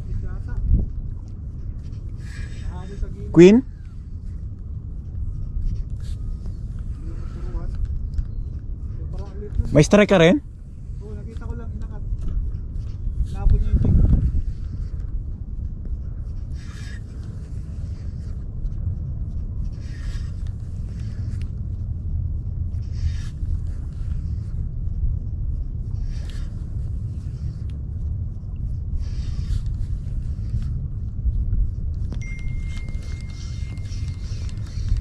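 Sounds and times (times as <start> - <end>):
wind buffeting microphone: 0.0 - 35.0
steady high tone: 32.2 - 34.2.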